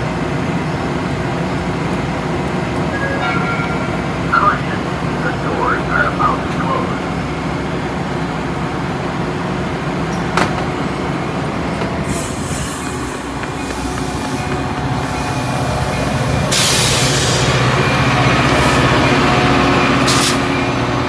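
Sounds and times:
diesel locomotive rumbling: 0.0 - 21.0
train wheels on rails: 7.7 - 21.0
train doors shutting: 10.0 - 20.8.

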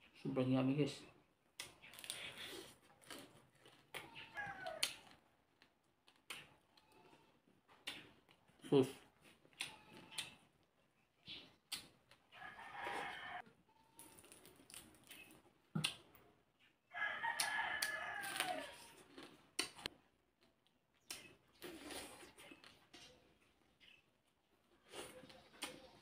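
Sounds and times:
fish picked apart and chewed: 1.4 - 16.2.

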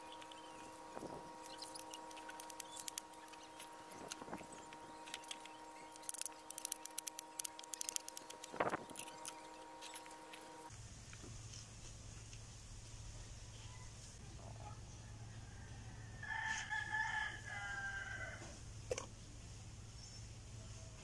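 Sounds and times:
steady hum: 0.0 - 13.5.

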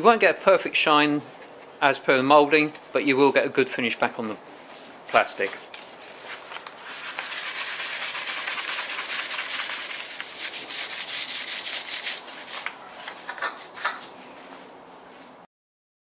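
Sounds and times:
sandpaper rubbing on plastic: 6.0 - 14.1.

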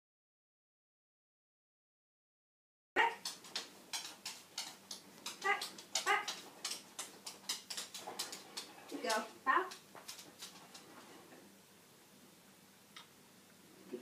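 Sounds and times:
light clicks and taps: 3.2 - 11.2
dog whining: 5.4 - 6.4.

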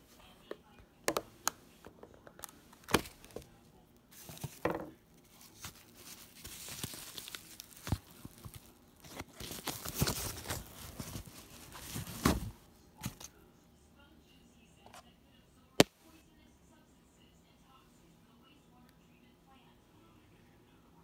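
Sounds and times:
bubble wrap crinkling: 5.2 - 13.3.

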